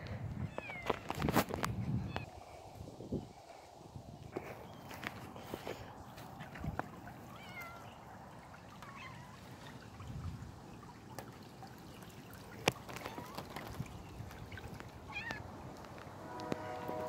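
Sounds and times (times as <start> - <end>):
trickle of running water: 4.9 - 17.0
cat meowing: 7.3 - 7.9.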